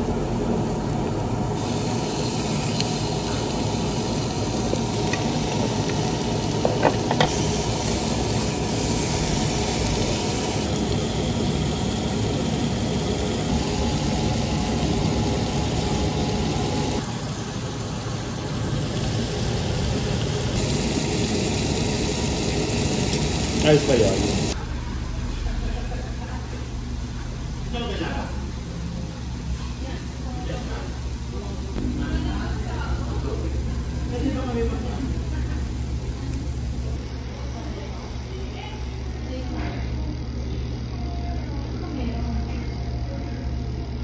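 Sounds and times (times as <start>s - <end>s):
meat sizzling on a griddle: 1.6s - 17.0s, 18.4s - 24.6s.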